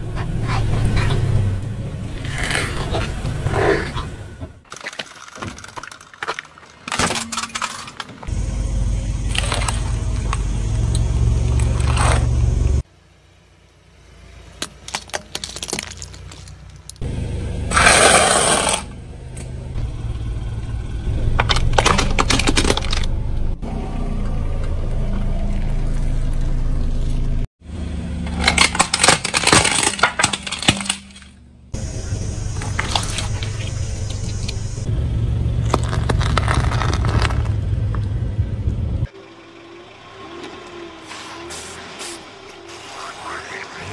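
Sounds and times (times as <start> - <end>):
car engine and tyre rumble: 0.0 - 43.9
objects crunching under tyre: 2.1 - 8.4, 9.2 - 12.9, 14.6 - 17.1, 17.7 - 19.5, 21.3 - 23.6, 28.2 - 38.3
dry pasta crunching: 35.6 - 37.6.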